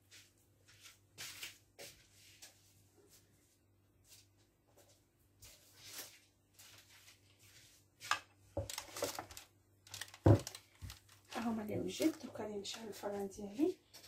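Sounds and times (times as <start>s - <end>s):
baking paper rustling and scraping: 5.5s - 14.0s.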